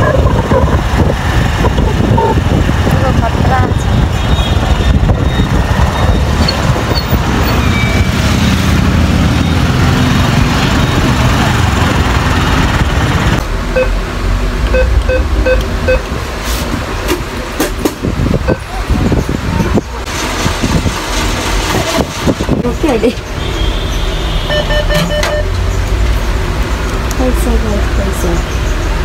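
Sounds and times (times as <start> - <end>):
wind on microphone: 0.0 - 8.3, 14.7 - 23.2
motorbike road noise: 0.0 - 29.0
atm short beeps: 14.7 - 16.0, 24.5 - 25.5.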